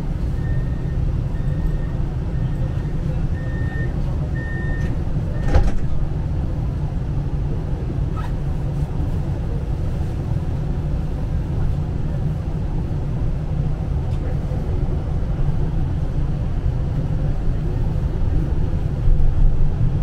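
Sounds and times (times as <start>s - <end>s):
tram interior rumble: 0.0s - 20.0s
loud clunk: 5.4s - 6.0s.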